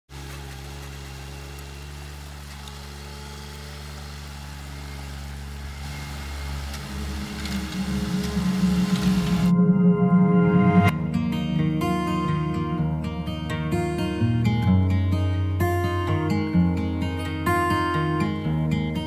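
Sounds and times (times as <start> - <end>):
mower engine humming: 0.1 - 19.0
music: 5.9 - 19.0.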